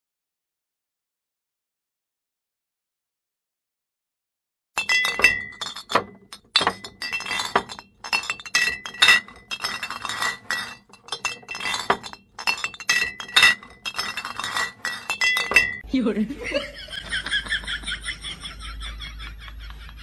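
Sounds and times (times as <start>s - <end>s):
metallic clinks and jingles: 4.8s - 15.8s.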